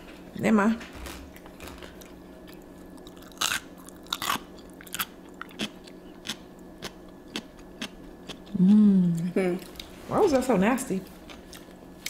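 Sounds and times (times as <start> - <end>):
cucumber crunching as chewed: 1.3 - 8.6.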